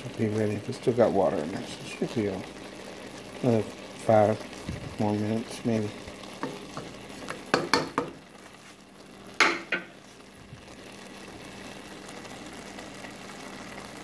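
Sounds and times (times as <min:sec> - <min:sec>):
rice sizzling: 0:00.0 - 0:14.0
wooden spoon scraping in pan: 0:06.3 - 0:08.9.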